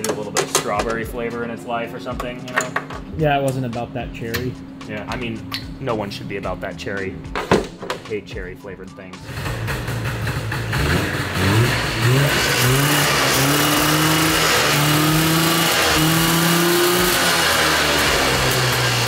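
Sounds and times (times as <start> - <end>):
snowcat engine revving: 9.2 - 19.0.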